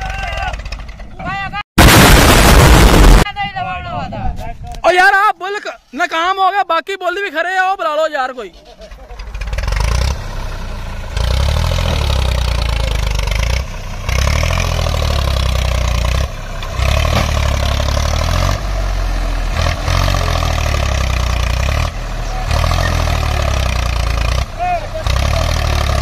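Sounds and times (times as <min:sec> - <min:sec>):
tractor diesel engine revving: 0:08.5 - 0:26.0.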